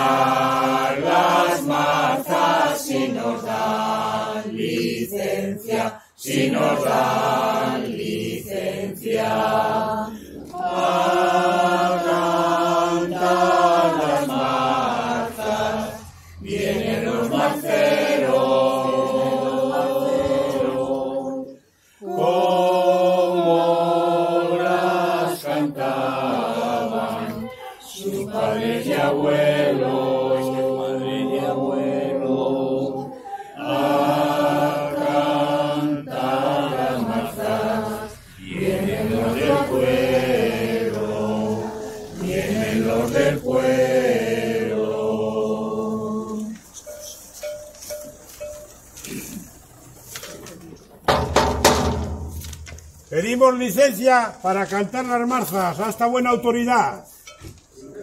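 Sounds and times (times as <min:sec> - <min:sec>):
group singing unaccompanied: 0:00.0 - 0:50.0.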